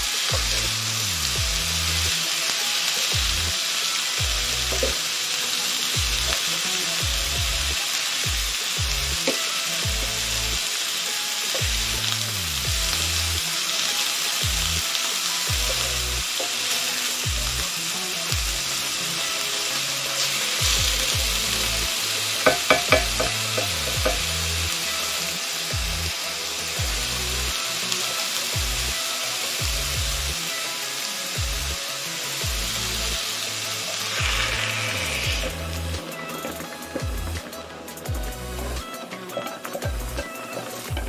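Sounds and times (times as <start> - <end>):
chicken sizzling in a skillet: 0.0 - 41.0
utensil knocking against pan: 22.4 - 24.3.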